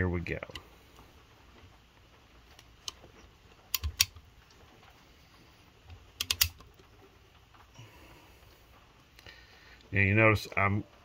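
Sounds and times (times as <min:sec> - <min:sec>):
valve spring compressor clicks: 0:06.2 - 0:06.6.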